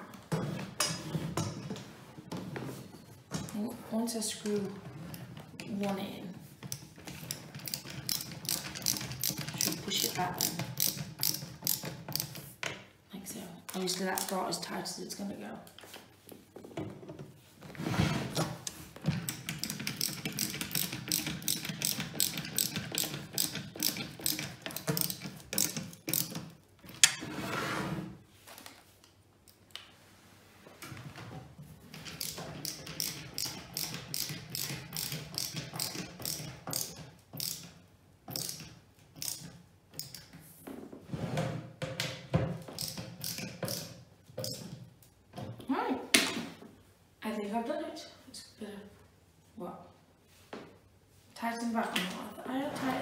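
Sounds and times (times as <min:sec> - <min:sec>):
ratcheting screwdriver clicking: 0:06.7 - 0:12.4, 0:38.3 - 0:40.3.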